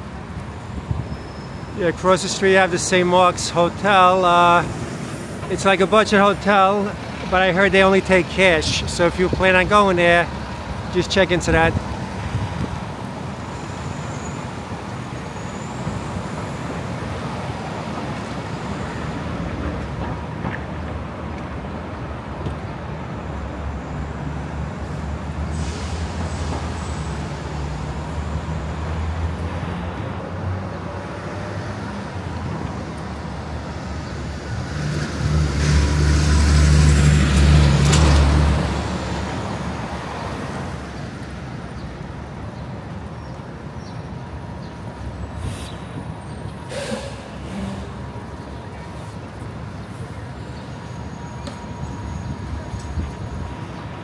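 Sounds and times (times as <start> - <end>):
vehicles passing: 0.0 - 54.0
heavy vehicle engine rumble: 40.6 - 54.0.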